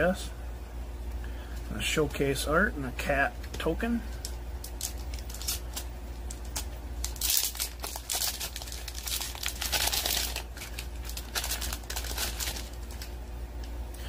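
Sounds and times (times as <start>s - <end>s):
plastic wrapper crinkling: 4.2s - 13.3s.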